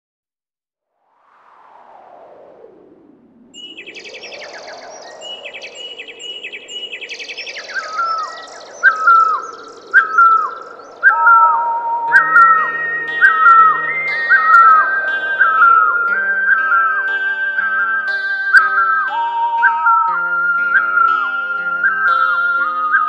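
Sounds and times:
downward sliding whistled call: 3.5s - 23.0s
birds chirping in trills: 3.6s - 23.0s
soft swooshing sweep: 8.6s - 23.0s.

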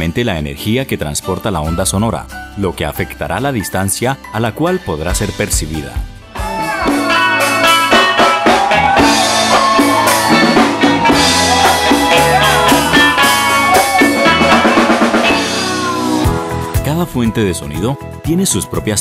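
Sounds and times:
drum kit: 5.0s - 19.0s
congas: 5.1s - 19.0s
melodic lines bending: 6.9s - 17.9s.

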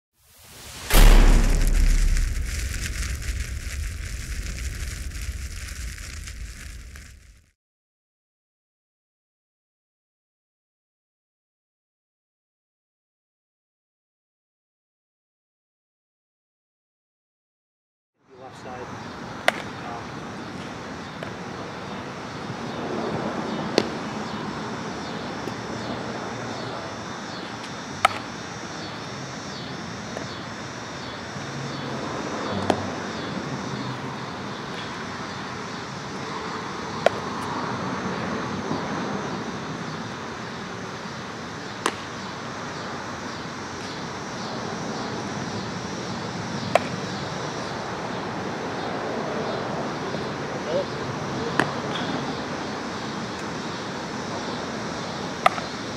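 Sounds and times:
outdoor background noise: 0.2s - 7.4s, 18.2s - 55.9s
bat cracking ground balls: 19.4s - 19.8s, 27.6s - 28.3s, 41.8s - 42.2s, 46.7s - 47.0s, 55.4s - 55.7s.

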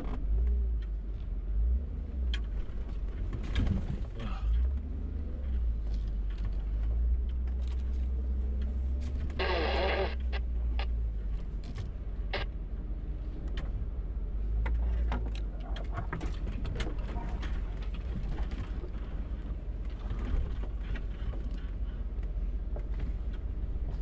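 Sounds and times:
engine droning low: 0.0s - 24.0s
vehicle knocks and rattles: 2.3s - 9.4s, 14.5s - 24.0s.

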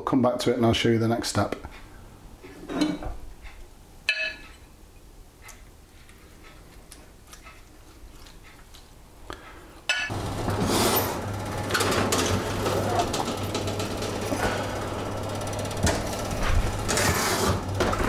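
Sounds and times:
steady low hum: 9.2s - 18.0s.

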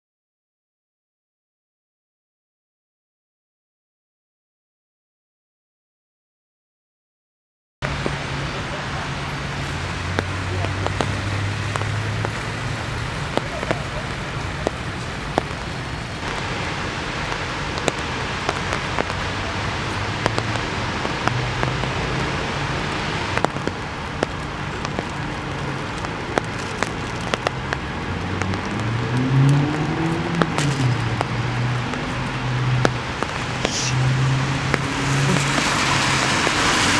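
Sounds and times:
rain falling: 7.8s - 36.9s
road traffic hum: 7.8s - 36.9s
vehicle engine rising in pitch: 28.3s - 31.8s.

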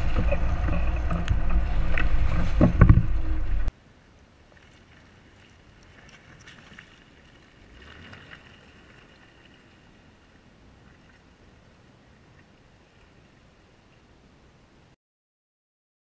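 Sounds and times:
faint vehicle driving through mud: 0.0s - 3.7s.

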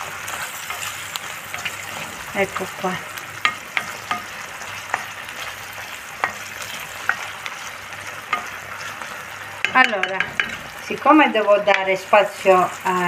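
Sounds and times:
beans and onion sizzling in oil: 0.0s - 13.0s
wooden spoon clicking on pan: 9.6s - 10.6s.

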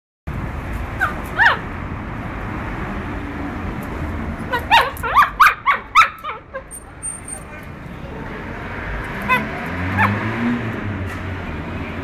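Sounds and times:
dog whining and yipping: 1.0s - 1.6s, 4.5s - 7.3s.

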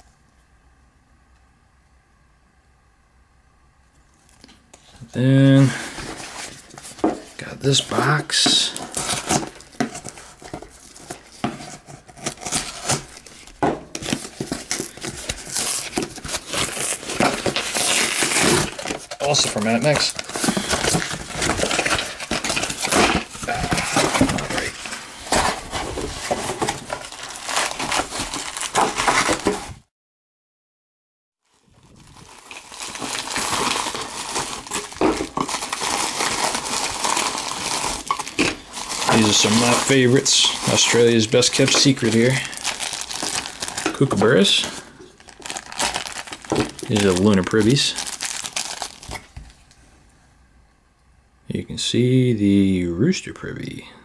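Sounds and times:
paper packing crinkling: 4.2s - 29.8s, 31.5s - 49.8s
cardboard box being opened: 5.4s - 29.8s, 31.8s - 49.4s.

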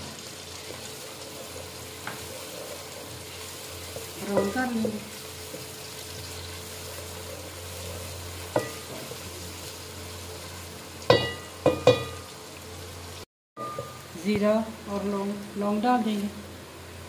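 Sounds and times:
onions sizzling in pot: 0.0s - 17.0s
spoon knocking against metal pot: 11.1s - 12.2s.

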